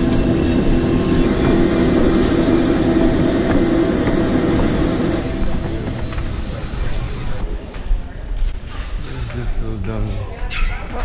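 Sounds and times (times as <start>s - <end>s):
dull cabin hum: 0.0s - 7.4s
thin high whine: 0.0s - 7.4s
jet airliner hum: 0.0s - 7.5s.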